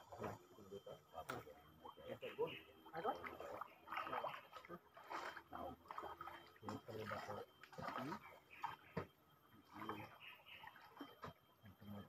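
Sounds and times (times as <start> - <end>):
faint men talking: 0.0 - 6.0, 6.6 - 8.4, 9.7 - 10.6, 11.6 - 12.0.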